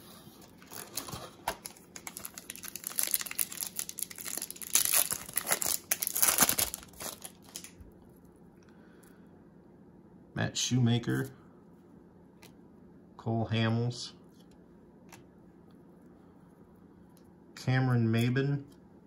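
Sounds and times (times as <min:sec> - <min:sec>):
foil wrapper tearing and crinkling: 0:00.6 - 0:07.8.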